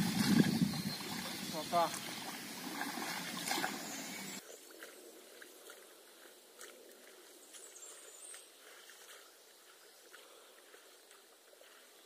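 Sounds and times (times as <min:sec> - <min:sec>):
faint high bird chirp: 0:00.4 - 0:02.3.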